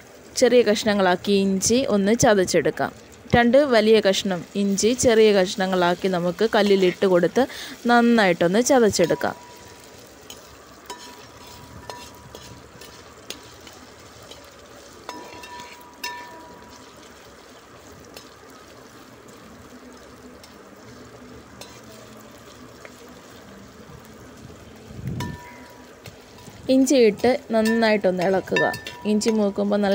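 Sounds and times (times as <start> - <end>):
food sizzling in hot oil: 0.0 - 29.9
metal ladle clinking against pot: 15.1 - 16.6, 27.6 - 29.6.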